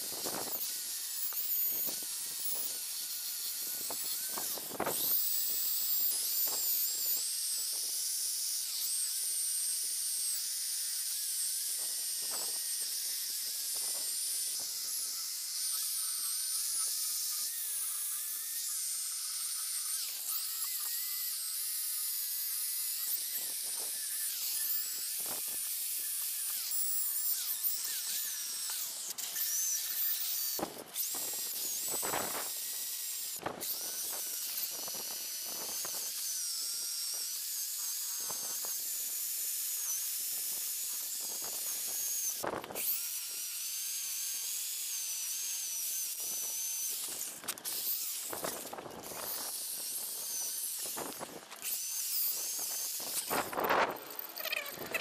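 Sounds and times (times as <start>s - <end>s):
drill with wire wheel on metal: 0.0s - 55.0s.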